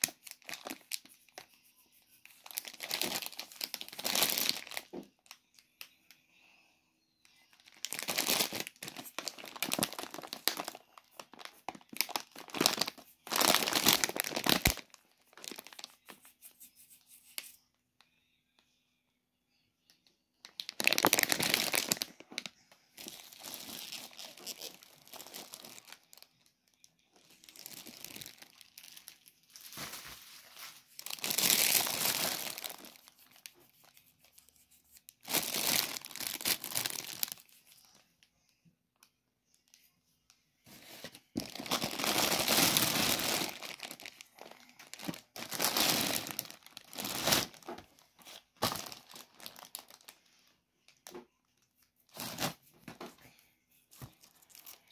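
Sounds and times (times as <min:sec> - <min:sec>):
plastic packaging crinkling: 0:00.0 - 0:01.4, 0:02.4 - 0:05.4, 0:07.5 - 0:16.1, 0:20.4 - 0:33.9, 0:35.2 - 0:38.0, 0:40.8 - 0:50.3.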